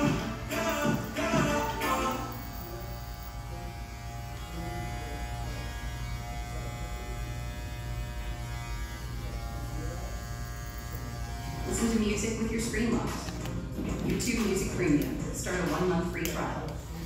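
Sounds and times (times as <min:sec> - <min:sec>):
background music with singing: 0:00.0 - 0:02.9
electric hair clippers buzzing: 0:00.0 - 0:13.7, 0:15.1 - 0:17.0.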